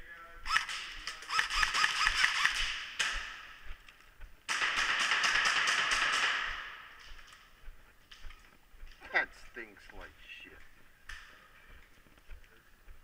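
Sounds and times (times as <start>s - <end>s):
airsoft gun shots: 0.5s - 3.5s, 4.5s - 6.9s.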